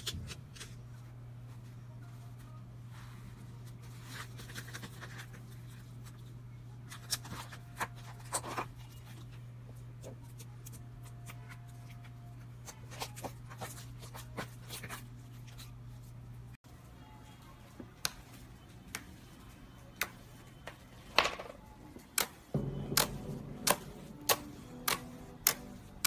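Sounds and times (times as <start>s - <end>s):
steady low hum: 21.6s - 26.0s.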